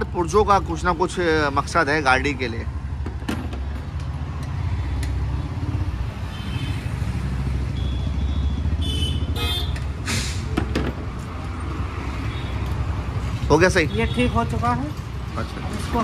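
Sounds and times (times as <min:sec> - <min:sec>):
road traffic rumble: 0:00.0 - 0:16.0
vehicle horn toots: 0:07.8 - 0:09.8.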